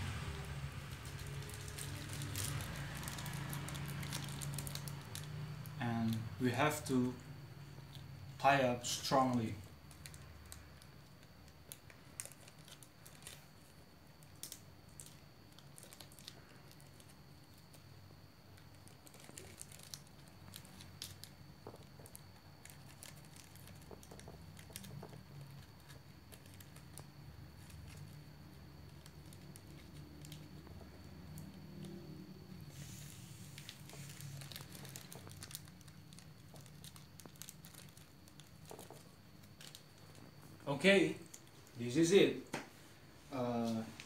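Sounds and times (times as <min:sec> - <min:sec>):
plastic bag crinkling: 0:00.1 - 0:17.8, 0:18.4 - 0:28.2, 0:28.8 - 0:32.0, 0:32.7 - 0:42.3.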